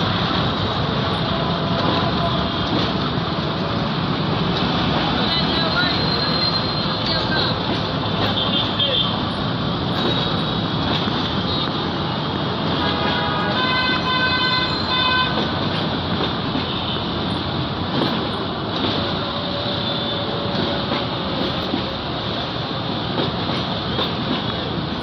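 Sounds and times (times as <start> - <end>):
traffic noise: 0.0 - 25.0
train rumbling: 0.0 - 25.0
train horn: 12.8 - 15.4, 19.0 - 21.2.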